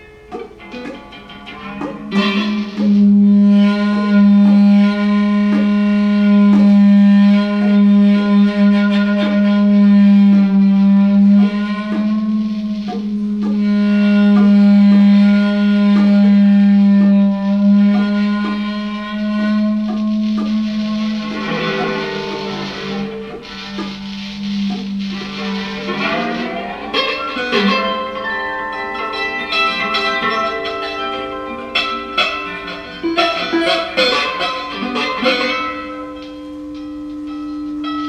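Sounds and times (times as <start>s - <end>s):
electric guitar picking notes: 0.0s - 38.0s
sustained drone tone: 0.0s - 38.0s.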